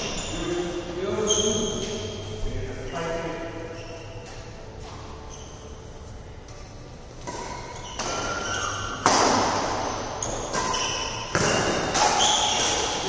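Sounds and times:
racket hitting shuttlecock: 0:07.2 - 0:13.0.

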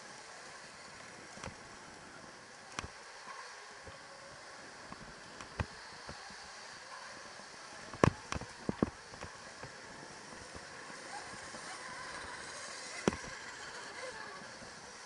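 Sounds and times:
knocks and rattles over bumps: 0:07.9 - 0:12.3, 0:12.9 - 0:13.6.

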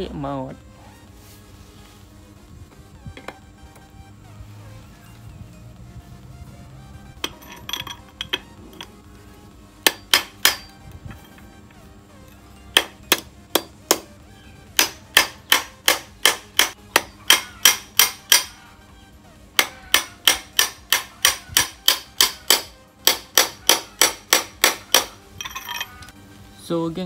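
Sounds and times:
sharp metal knocks: 0:09.8 - 0:10.8, 0:12.7 - 0:14.1, 0:14.8 - 0:18.6, 0:19.6 - 0:26.0.

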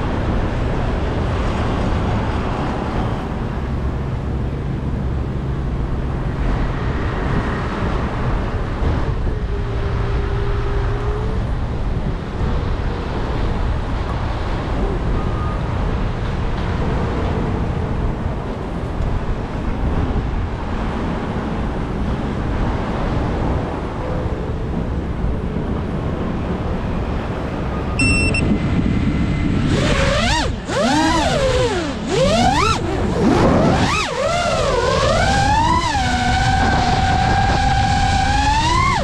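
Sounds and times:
road traffic: 0:00.0 - 0:39.0
wind rumbling on microphone: 0:00.0 - 0:39.0
short electronic beep: 0:27.9 - 0:28.5.

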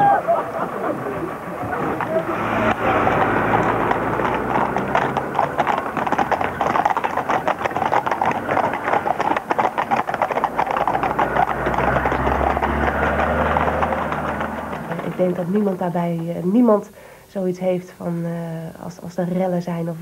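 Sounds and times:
hooves clip-clopping on brick: 0:01.0 - 0:16.8.

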